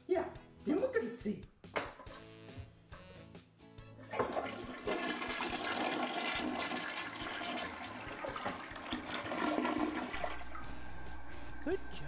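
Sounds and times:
toilet flushing: 0:04.0 - 0:11.8.

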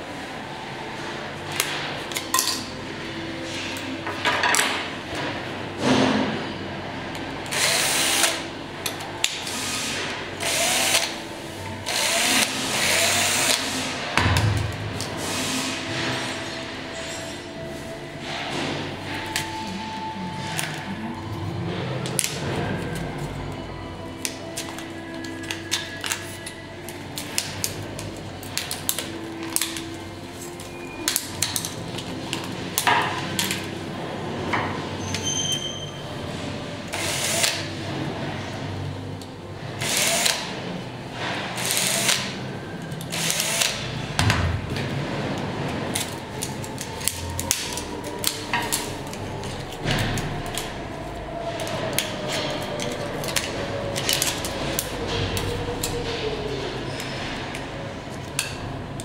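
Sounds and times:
cordless drill-driver whirring: 0:07.5 - 0:08.4, 0:10.4 - 0:11.2, 0:11.9 - 0:13.7, 0:39.8 - 0:40.4.

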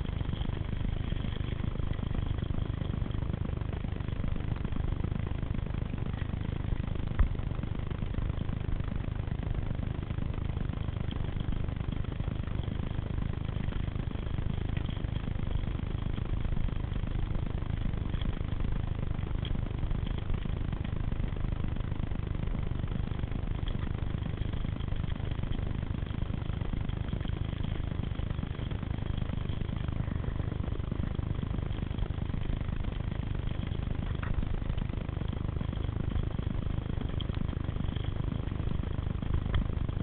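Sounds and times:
bike trail noise: 0:00.0 - 0:04.4, 0:23.0 - 0:40.0
wind rumble on microphone: 0:00.0 - 0:40.0
faint clicks: 0:23.6 - 0:26.2, 0:31.8 - 0:34.9, 0:35.6 - 0:40.0.

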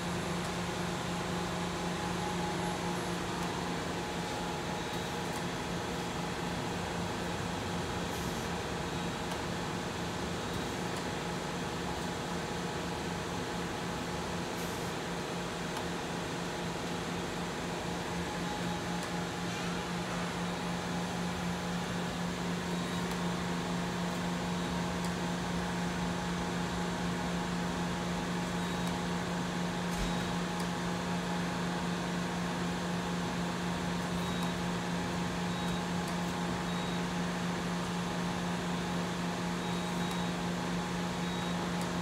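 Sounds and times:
machine hum with low drone: 0:00.0 - 0:42.0.

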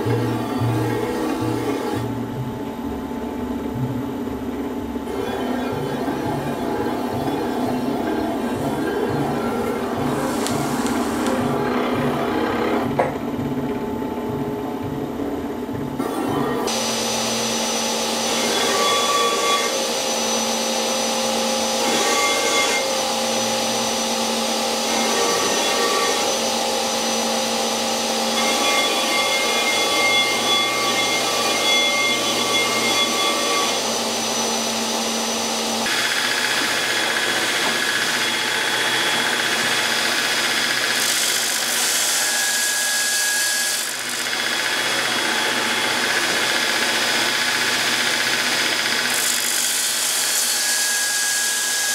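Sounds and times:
surface grinder grinding hiss: 0:07.3 - 0:12.2, 0:16.7 - 0:51.9
belt grinder grinding steel blade: 0:18.2 - 0:51.9.

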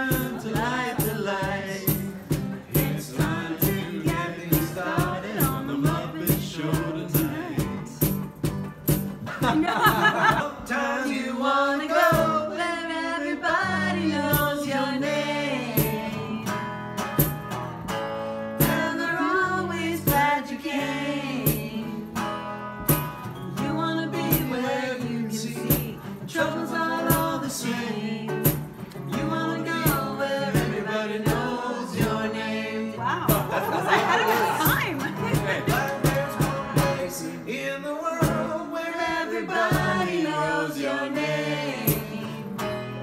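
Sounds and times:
man singing: 0:00.0 - 0:08.2, 0:09.4 - 0:12.6, 0:23.6 - 0:42.6
strummed guitar: 0:00.0 - 0:11.0, 0:11.9 - 0:12.6, 0:13.6 - 0:43.0.

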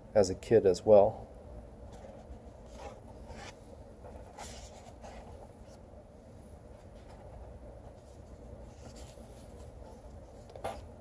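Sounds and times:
low room hum: 0:00.0 - 0:11.0
book pages turning: 0:01.9 - 0:05.8, 0:06.8 - 0:10.9.

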